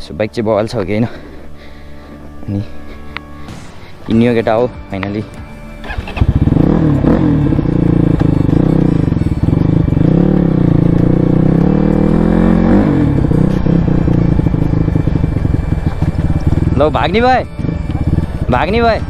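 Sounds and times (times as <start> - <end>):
dirt bike engine running: 5.4 - 19.0.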